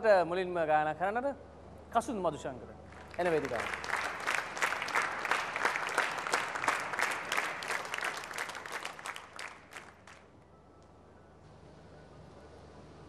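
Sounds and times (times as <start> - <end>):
audience applauding: 2.9 - 10.3.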